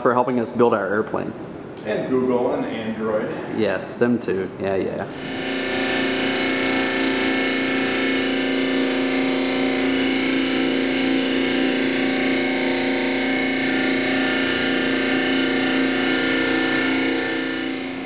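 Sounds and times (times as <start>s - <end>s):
disc sander sanding board: 5.1s - 18.0s.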